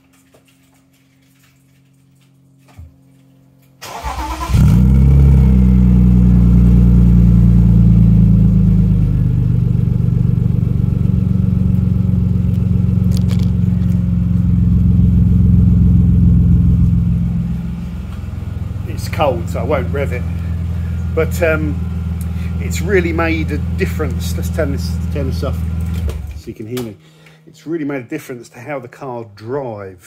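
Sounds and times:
car starter cranking: 3.8s - 6.7s, 16.4s - 26.5s
car engine idling: 3.8s - 27.4s.

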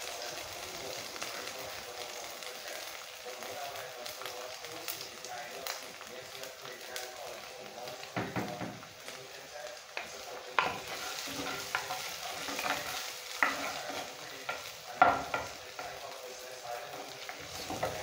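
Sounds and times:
low steady sizzle: 0.0s - 18.0s
spoon scraping and knocking a pot: 10.6s - 14.0s.

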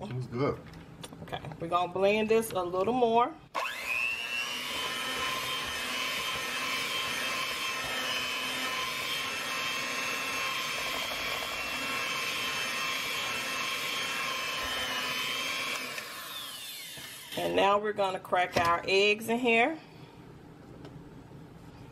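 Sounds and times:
electric hand mixer whine: 3.5s - 17.8s.

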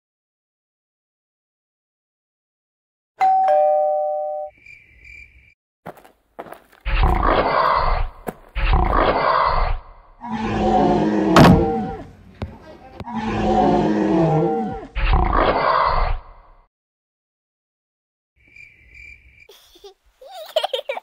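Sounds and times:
two-note doorbell chime: 3.2s - 4.5s
growling roars: 6.9s - 12.2s, 13.0s - 16.5s.

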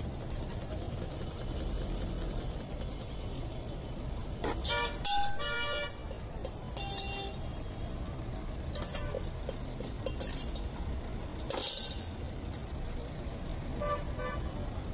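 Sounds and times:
road traffic rumble: 0.0s - 14.9s
vehicle horn honking: 4.6s - 6.0s, 6.8s - 7.4s, 13.8s - 14.4s.

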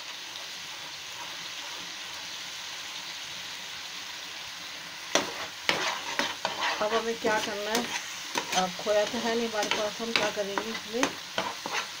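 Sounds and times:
spatula scraping pan: 0.0s - 2.3s, 5.0s - 12.0s
paste sizzling in oil: 0.0s - 12.0s.

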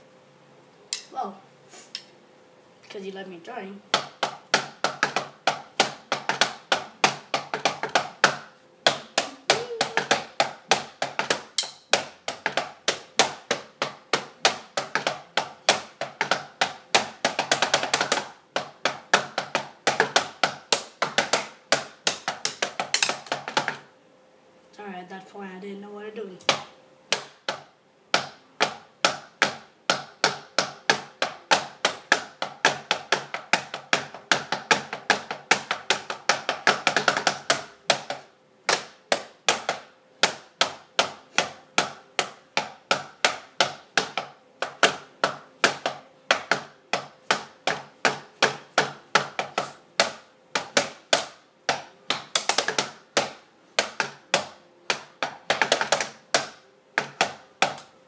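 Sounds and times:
drumsticks drumming on hard surface: 3.9s - 23.9s, 26.4s - 58.0s.

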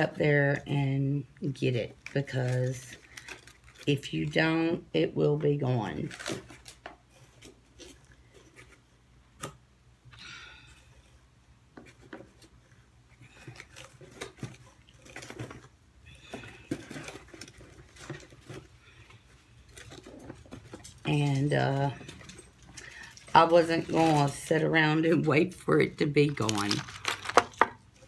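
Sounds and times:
packaging rustling: 1.9s - 4.4s, 5.8s - 9.4s, 11.8s - 25.0s, 25.9s - 28.0s.

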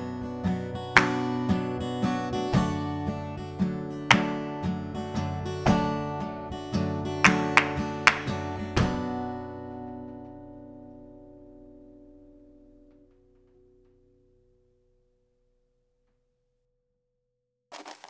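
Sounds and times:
acoustic guitar strumming chords: 0.0s - 14.4s.

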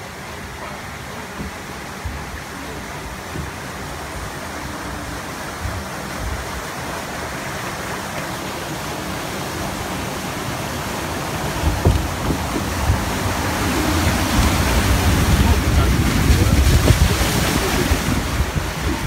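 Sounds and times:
water rushing along concrete channel: 0.0s - 19.0s
low rumbling bumps: 10.6s - 19.0s.

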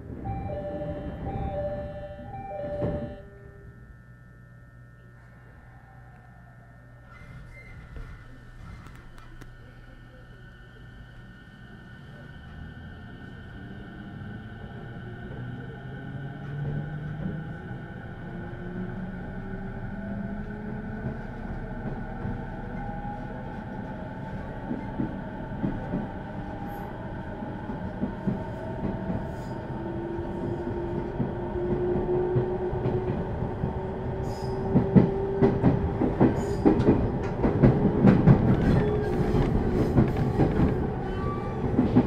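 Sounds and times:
electric train motor whine: 0.1s - 13.3s.

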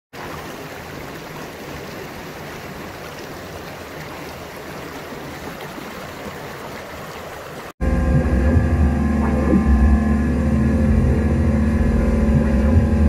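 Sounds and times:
stream flowing over rocks: 0.1s - 7.8s.

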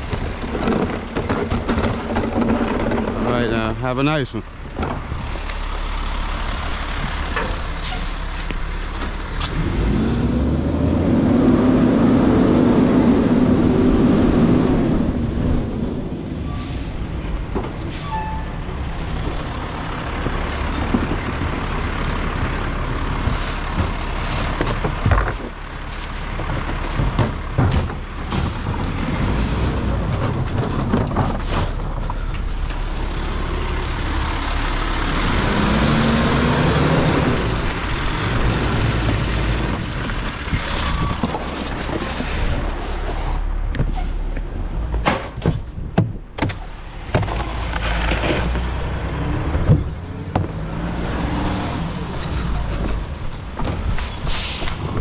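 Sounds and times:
truck engine revving: 5.0s - 16.2s, 32.9s - 43.6s, 47.7s - 55.0s
air brake hisses: 54.1s - 54.8s.

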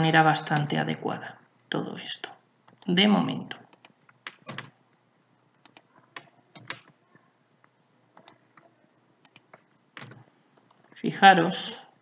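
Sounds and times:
keyboard and mouse clicking: 3.7s - 4.7s, 5.6s - 6.9s, 8.2s - 10.8s.

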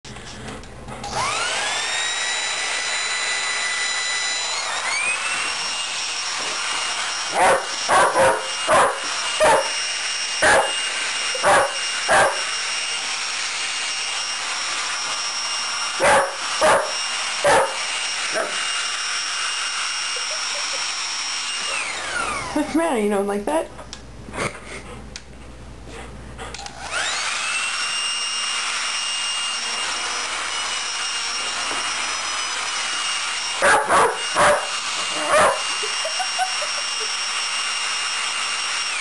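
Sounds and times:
hair dryer whining: 0.5s - 25.3s, 26.5s - 39.0s
dog barking: 7.4s - 9.7s, 10.4s - 10.8s, 11.4s - 12.5s, 16.0s - 17.8s, 18.4s - 18.6s, 33.6s - 35.7s.

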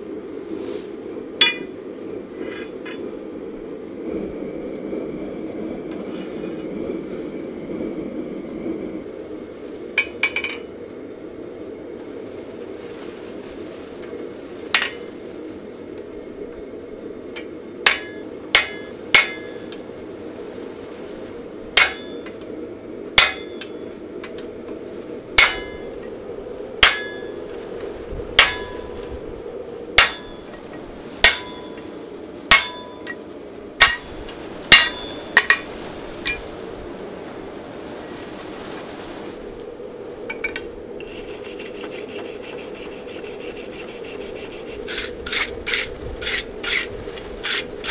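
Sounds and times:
low drone: 0.0s - 47.9s
hammer striking metal chisel: 32.5s - 32.8s.

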